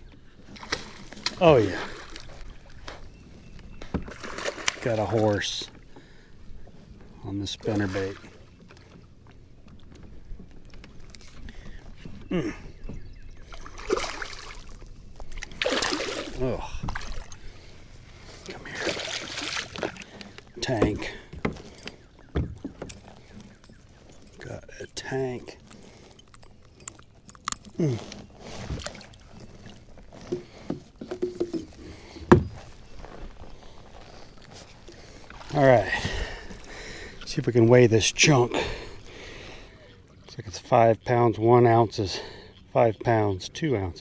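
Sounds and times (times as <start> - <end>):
short grunt: 12.3 - 12.7
fish splashing at the surface: 15.4 - 16.4.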